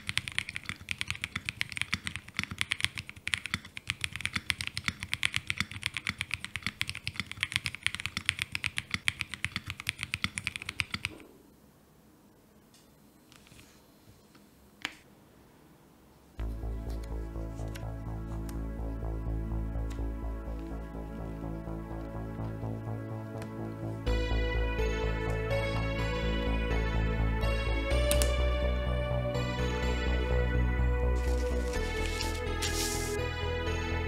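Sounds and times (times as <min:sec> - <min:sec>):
mechanical keyboard typing: 0:00.0 - 0:11.2.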